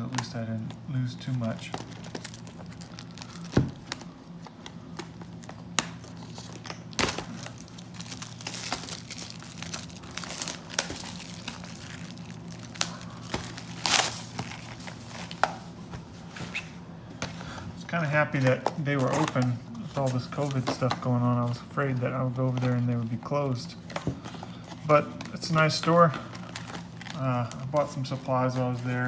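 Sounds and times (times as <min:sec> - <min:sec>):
plastic shrink wrap crinkling: 0:00.0 - 0:15.8, 0:24.2 - 0:29.0.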